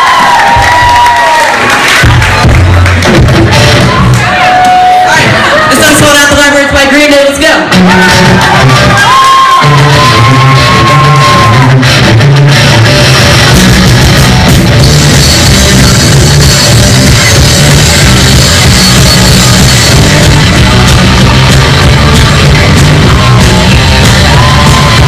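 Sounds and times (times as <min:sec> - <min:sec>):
drum kit: 0:00.0 - 0:06.5, 0:07.6 - 0:25.0
electric guitars: 0:00.4 - 0:06.1, 0:07.7 - 0:25.0
electric bass: 0:02.0 - 0:06.3, 0:07.7 - 0:25.0.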